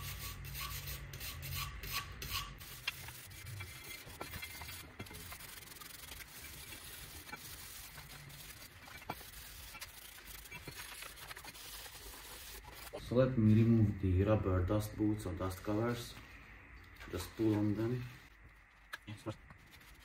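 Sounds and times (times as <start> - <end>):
wire brush scratching metal: 0.0 - 13.0.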